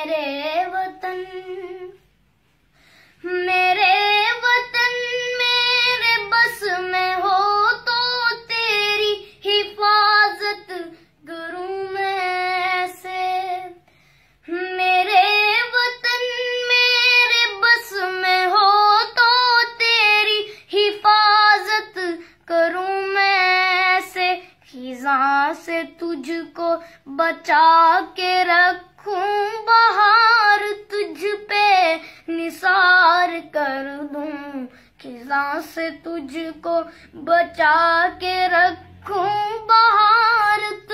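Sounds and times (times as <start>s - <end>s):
singer breathing: 2.5s - 3.2s, 13.8s - 14.5s.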